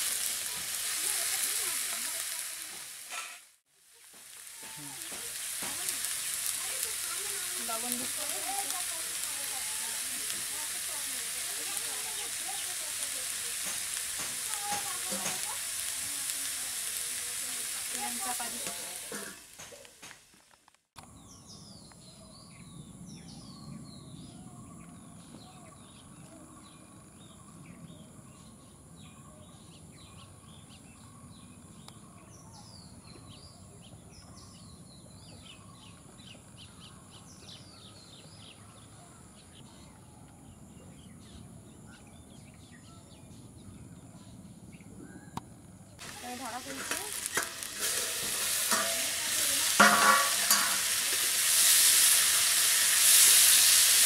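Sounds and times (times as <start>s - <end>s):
vegetables sizzling in oil: 0.0s - 20.4s, 46.0s - 54.0s
birds chirping: 4.2s - 15.6s, 21.0s - 51.1s.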